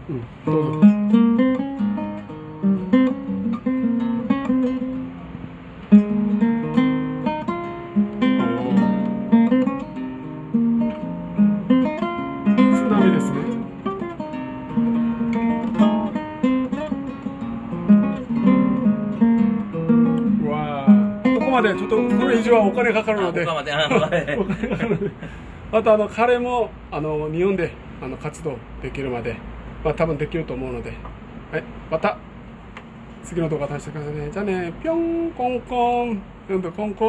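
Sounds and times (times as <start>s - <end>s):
nylon-string acoustic guitar: 0.0s - 24.6s.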